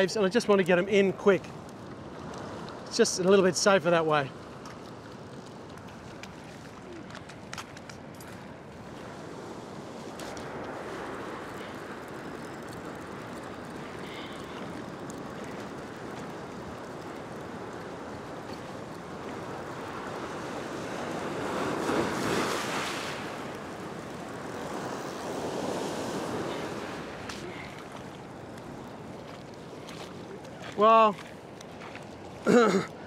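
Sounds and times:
waves washing over rock shelf: 8.6s - 31.6s.

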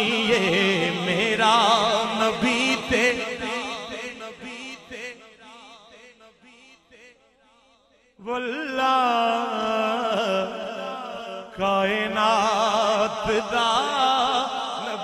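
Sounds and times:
man singing: 0.0s - 7.1s, 8.2s - 15.0s.

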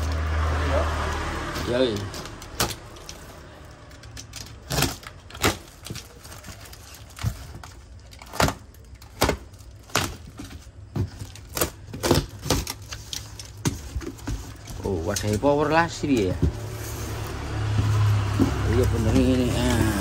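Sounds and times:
cardboard cracking: 2.1s - 15.4s.

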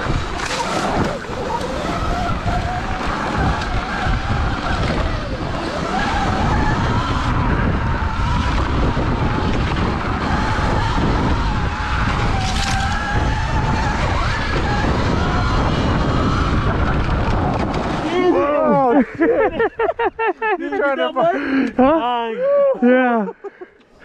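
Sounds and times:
electric dirt bike motor whining: 0.0s - 18.2s
wind rumble on microphone: 0.0s - 18.4s
tyre noise: 0.0s - 20.0s.

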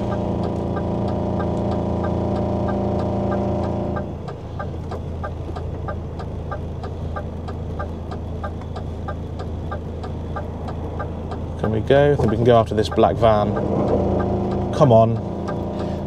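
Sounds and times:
indicator ticking: 0.0s - 16.0s
truck engine idling: 0.0s - 16.0s.

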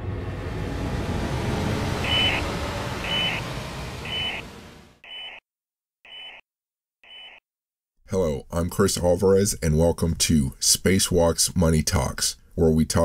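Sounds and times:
low rumble: 0.0s - 5.0s
short electronic beep: 2.0s - 5.4s.

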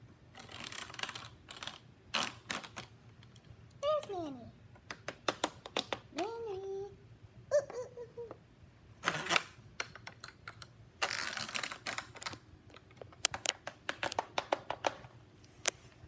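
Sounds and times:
plastic toy parts scraping and rattling: 0.3s - 3.5s, 9.1s - 15.8s
sharp plastic clicks: 4.7s - 6.3s, 9.2s - 15.8s.

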